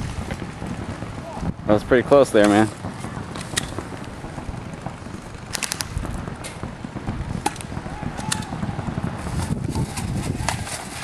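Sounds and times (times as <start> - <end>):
airsoft guns firing: 2.3 - 11.0.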